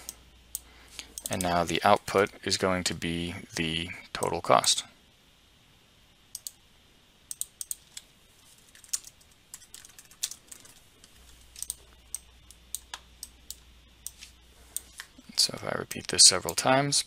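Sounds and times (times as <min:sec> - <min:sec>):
mouse clicks: 0:06.3 - 0:06.6
typing on computer keyboard: 0:08.7 - 0:10.9, 0:11.6 - 0:12.2.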